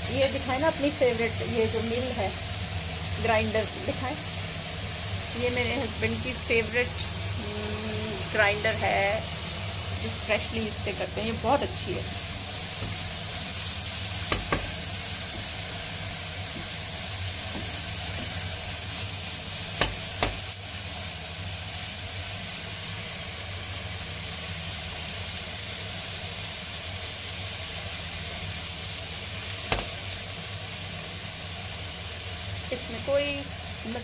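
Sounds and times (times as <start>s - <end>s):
vegetables sizzling in frying pan: 0.0s - 34.0s
spatula stirring in pan: 11.5s - 20.6s.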